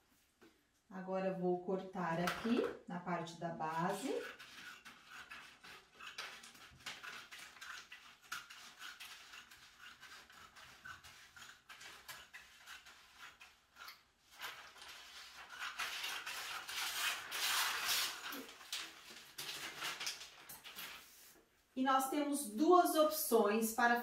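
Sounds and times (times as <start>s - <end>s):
paper rustling: 4.0s - 21.4s.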